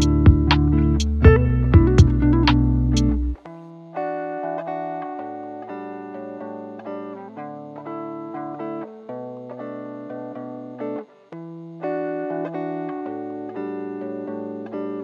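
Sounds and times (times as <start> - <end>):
sustained bass line: 0.0 - 3.4
plucked guitar melody: 0.0 - 15.0.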